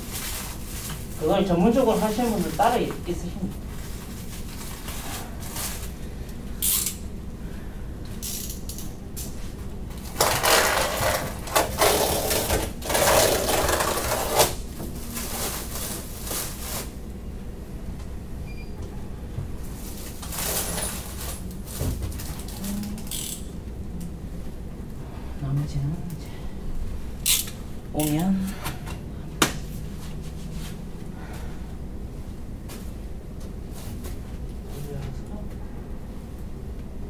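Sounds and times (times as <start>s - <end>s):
plastic wrapping rustling: 0.0s - 6.0s, 10.0s - 17.0s, 19.6s - 23.2s
low room hum: 0.0s - 37.0s.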